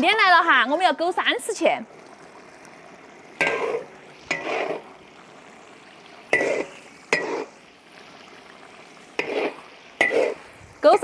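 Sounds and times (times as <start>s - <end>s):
spatula clanking and scraping wok: 3.4s - 4.9s, 6.3s - 7.6s, 9.2s - 10.5s.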